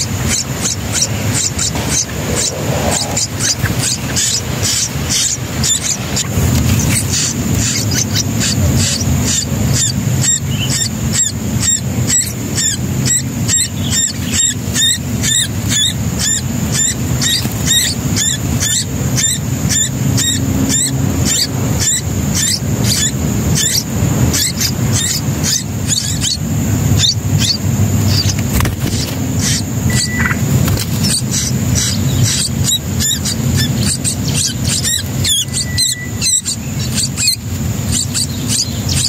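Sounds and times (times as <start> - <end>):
low rumble: 0.0 - 8.6
nestling birds chirping: 0.0 - 39.0
constant high tone: 29.8 - 39.0.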